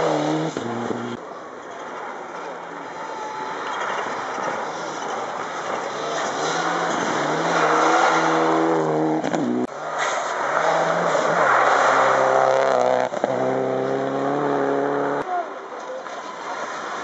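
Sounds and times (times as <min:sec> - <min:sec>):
rally car engine at high revs: 0:00.0 - 0:01.2, 0:04.6 - 0:15.2.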